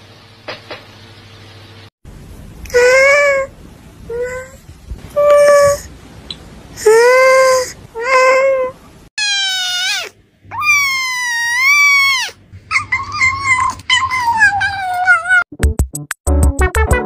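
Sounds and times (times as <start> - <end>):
kitten mewing: 6.9 - 15.4
adult cat yowling: 8.0 - 15.4
music with a beat: 15.5 - 17.0.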